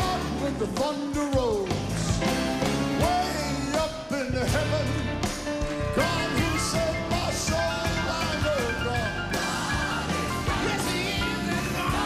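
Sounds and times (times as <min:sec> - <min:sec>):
band playing gospel music: 0:00.0 - 0:12.0.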